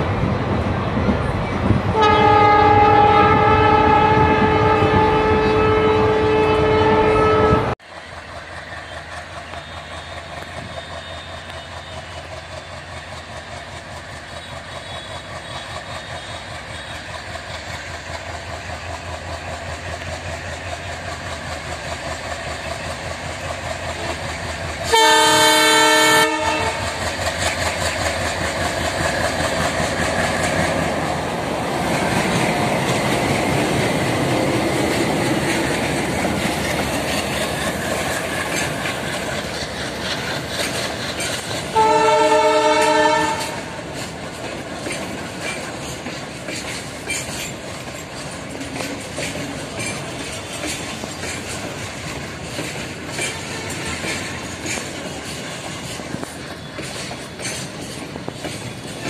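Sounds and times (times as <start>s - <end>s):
diesel locomotive engine chugging: 0.0s - 59.0s
train horn blast: 1.9s - 7.8s, 24.8s - 27.0s, 41.7s - 43.8s.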